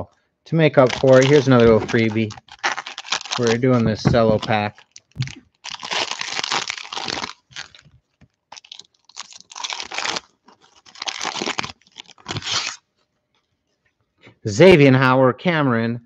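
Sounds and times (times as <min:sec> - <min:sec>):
cellophane wrapper crinkling: 0:00.7 - 0:13.0.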